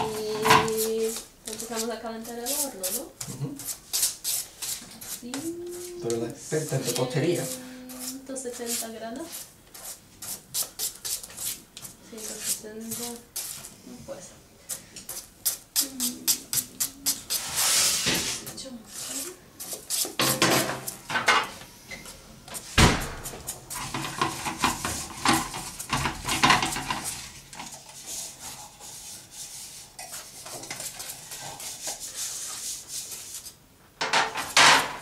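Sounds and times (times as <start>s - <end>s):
utensil scraping metal pot: 23.7s - 33.1s.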